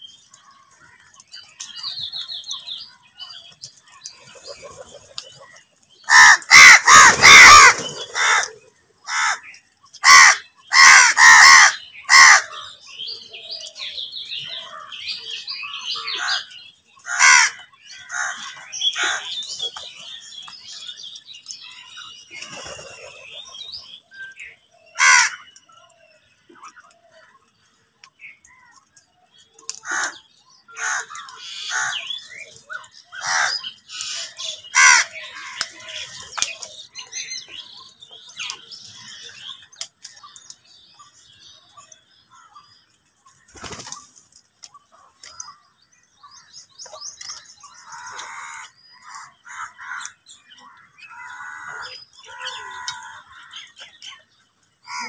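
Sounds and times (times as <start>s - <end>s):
crows cawing: 6.1s - 12.8s, 15.9s - 19.4s, 25.0s - 25.5s, 29.8s - 32.1s, 33.1s - 36.0s, 47.8s - 53.7s.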